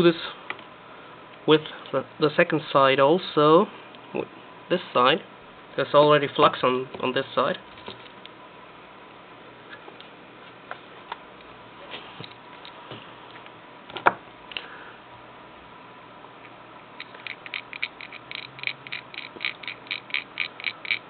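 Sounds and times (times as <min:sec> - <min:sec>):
fast regular ticking: 0:17.0 - 0:21.0.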